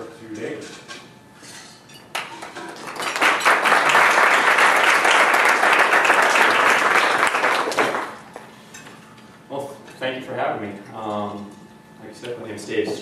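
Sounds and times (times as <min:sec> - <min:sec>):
audience applauding: 0:02.2 - 0:08.2.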